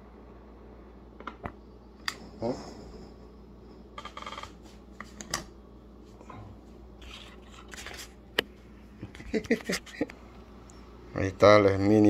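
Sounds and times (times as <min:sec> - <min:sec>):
camera handling rubbing and scraping: 0:07.0 - 0:08.2.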